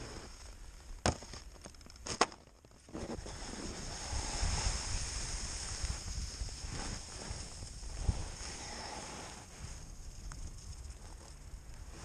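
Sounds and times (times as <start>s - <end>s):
skis sliding over snow: 0.0s - 0.7s, 2.8s - 10.2s, 11.0s - 12.0s.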